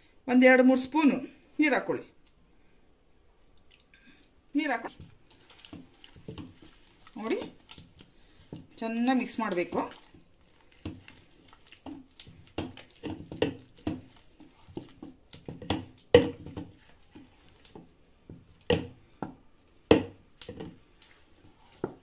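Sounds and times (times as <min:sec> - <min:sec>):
wet paste squelching: 0:03.6 - 0:22.0.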